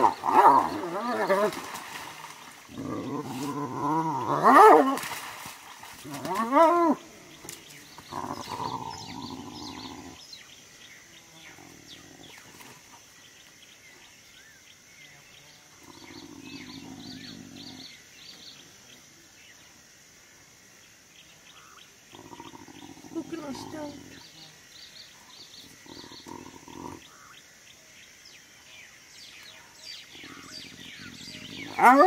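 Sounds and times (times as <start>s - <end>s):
hyenas low calls: 0.0s - 1.8s, 2.7s - 5.2s, 6.0s - 7.4s, 8.0s - 10.2s, 15.8s - 18.0s, 22.1s - 24.3s, 25.5s - 27.4s, 30.1s - 32.0s
birds chirping: 0.0s - 19.8s, 20.8s - 32.0s.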